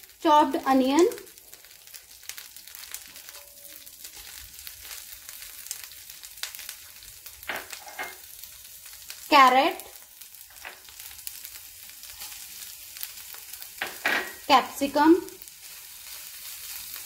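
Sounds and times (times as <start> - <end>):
onion sizzling in a frying pan: 0.0 - 17.0.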